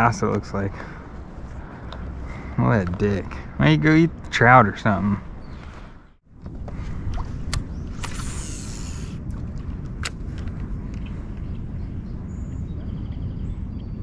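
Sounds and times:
steady low rumble: 0.0s - 14.0s
brief hiss: 8.0s - 9.2s.

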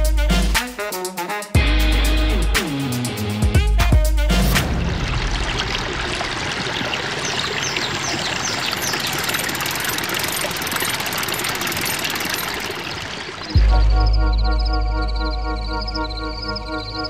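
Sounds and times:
river water rushing over rapids: 4.7s - 13.5s
bird chirping: 6.8s - 17.0s.

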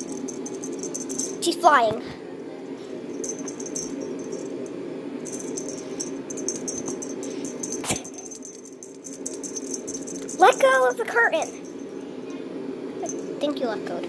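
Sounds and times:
jingling and rustling: 0.0s - 1.6s, 3.2s - 4.6s, 5.2s - 12.1s
steady low hum: 0.0s - 14.0s.

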